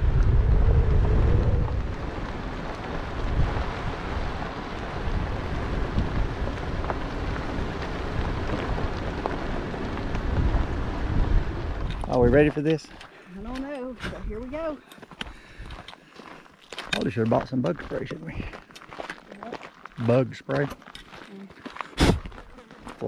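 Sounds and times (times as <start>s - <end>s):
wind buffeting microphone: 0.0s - 12.6s, 13.4s - 14.8s.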